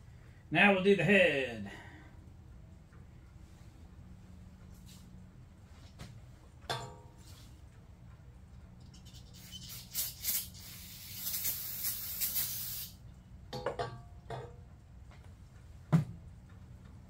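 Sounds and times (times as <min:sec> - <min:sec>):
metal clunk: 0:06.7 - 0:07.4, 0:13.5 - 0:14.6
aerosol can spraying: 0:09.3 - 0:13.0.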